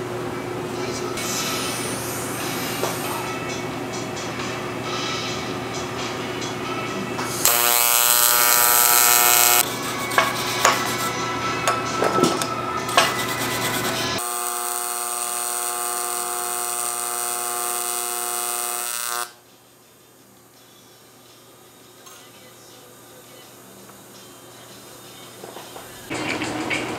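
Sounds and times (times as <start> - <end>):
welding arc buzzing: 7.3 - 9.7, 13.1 - 19.4
brush scraping metal: 9.6 - 11.2, 12.9 - 14.2.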